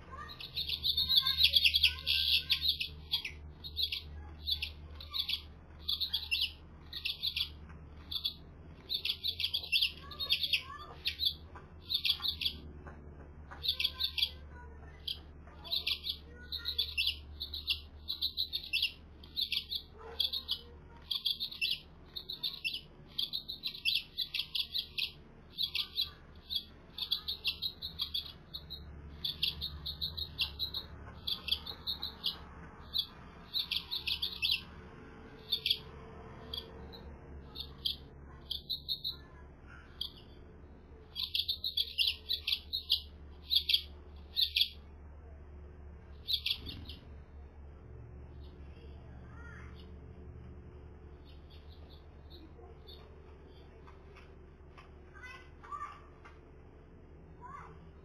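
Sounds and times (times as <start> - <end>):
faint low hum: 0.0 - 58.0
finch begging chirps: 0.1 - 12.7, 13.5 - 40.4, 41.1 - 44.9, 46.1 - 47.2.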